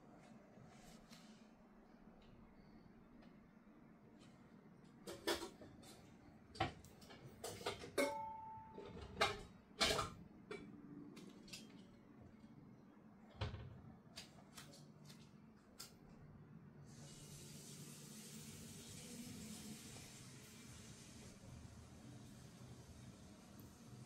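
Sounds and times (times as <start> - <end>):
steady hiss: 16.8 - 24.0.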